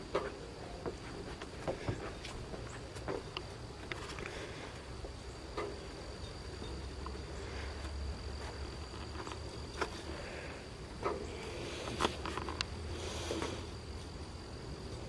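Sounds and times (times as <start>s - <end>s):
high-pitched insect drone: 0.0s - 15.0s
camera handling rumble: 11.8s - 12.7s.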